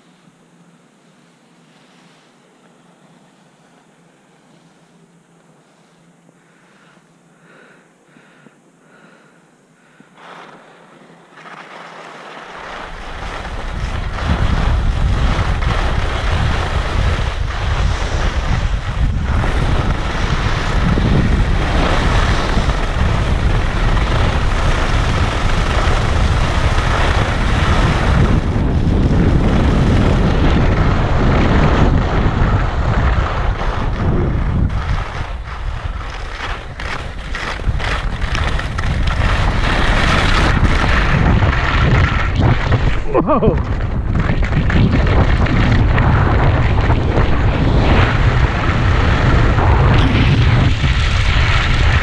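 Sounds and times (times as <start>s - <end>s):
wind rushing over microphone: 12.6s - 52.0s.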